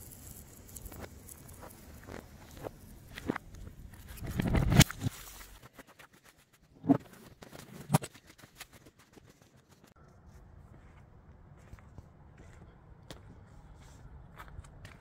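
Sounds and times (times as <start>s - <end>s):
light footsteps: 10.3s - 15.0s.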